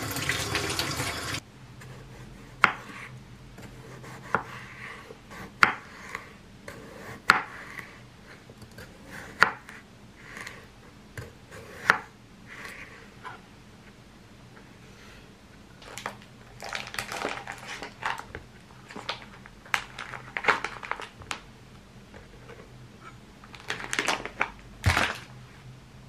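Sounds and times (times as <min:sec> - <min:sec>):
plastic packaging crinkling: 0:15.8 - 0:21.4, 0:23.4 - 0:25.4.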